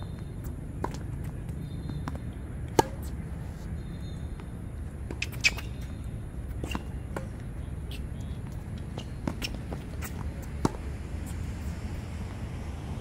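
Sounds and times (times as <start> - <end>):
shoe squeaks: 0.0 - 7.0, 7.8 - 10.6
racket hitting tennis ball: 2.0 - 3.2, 5.0 - 5.9, 6.5 - 8.0, 8.8 - 11.4.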